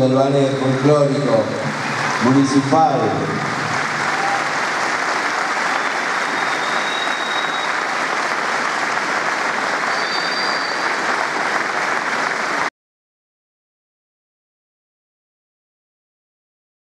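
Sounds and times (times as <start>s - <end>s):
audience applauding: 0.2s - 12.7s.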